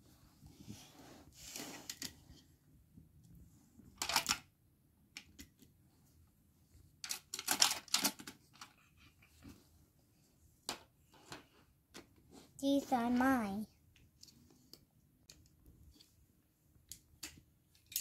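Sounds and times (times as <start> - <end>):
plastic toys clicking and clattering: 3.9 - 4.5, 5.1 - 5.7, 7.0 - 9.2, 16.8 - 18.0.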